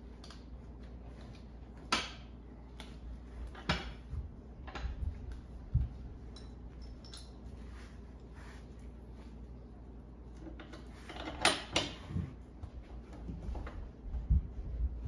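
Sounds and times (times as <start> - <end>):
metal bracket and bolt clinking: 6.3 - 7.6.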